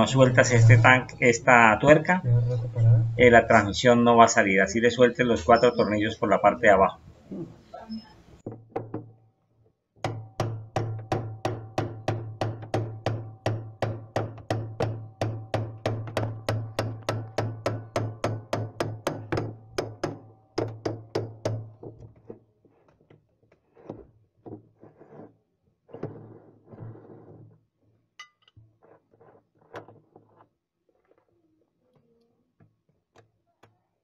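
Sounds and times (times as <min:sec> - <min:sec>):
hammer striking metal tool: 0:10.0 - 0:21.6.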